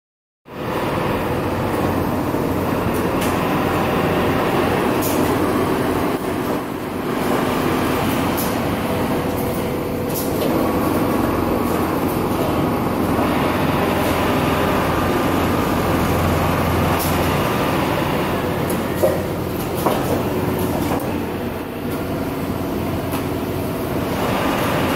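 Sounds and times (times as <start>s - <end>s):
factory floor din: 0.5s - 24.9s
sewing machines humming: 0.6s - 24.9s
machine clicks and knocks: 18.6s - 21.2s.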